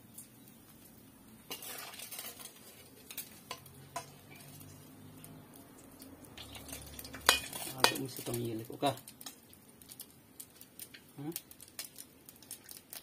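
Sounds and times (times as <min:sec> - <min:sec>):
metal spoon scraping a wok: 0:01.5 - 0:04.8, 0:06.4 - 0:08.0.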